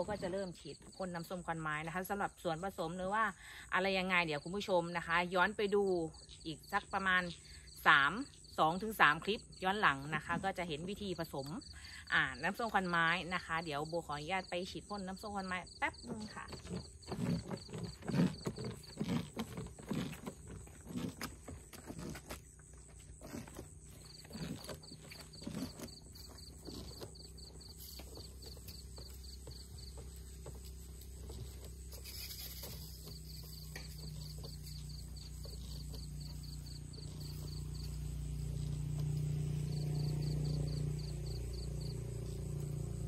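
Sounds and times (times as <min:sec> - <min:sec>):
insects chirring: 0:03.8 - 0:43.0
footsteps walking away: 0:16.9 - 0:39.7.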